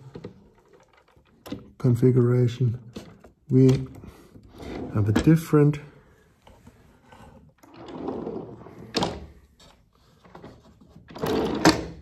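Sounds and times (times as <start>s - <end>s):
file support sliding on rollers: 4.1s - 5.3s, 6.4s - 11.9s.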